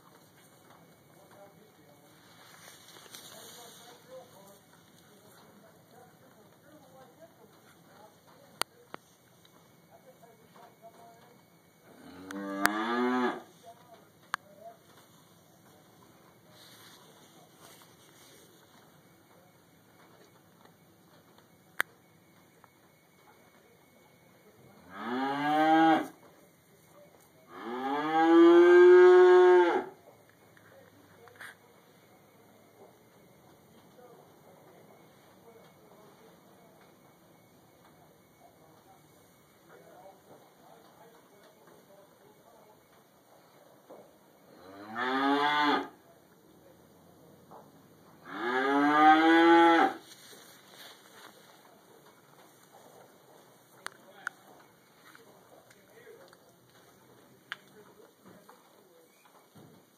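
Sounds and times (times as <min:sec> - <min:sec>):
cow mooing: 0:11.9 - 0:13.5, 0:24.9 - 0:26.1, 0:27.5 - 0:29.9, 0:48.2 - 0:50.0.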